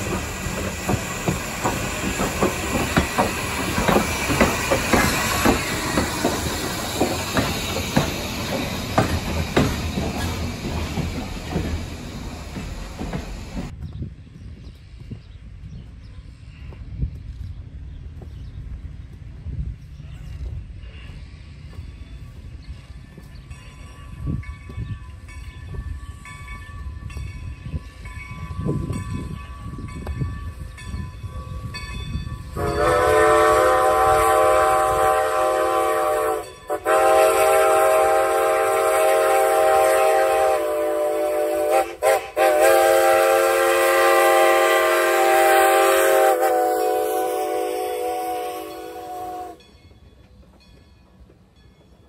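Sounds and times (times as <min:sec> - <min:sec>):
steam locomotive chuffing: 0:00.0 - 0:13.8, 0:30.5 - 0:50.8
train rumble: 0:00.0 - 0:52.0
chime steam whistle: 0:25.5 - 0:50.1.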